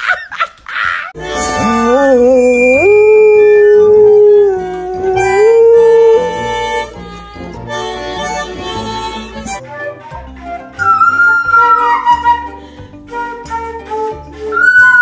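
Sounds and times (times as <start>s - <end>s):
background music with steady beat: 4.7s - 15.0s
dog howling: 14.6s - 15.0s.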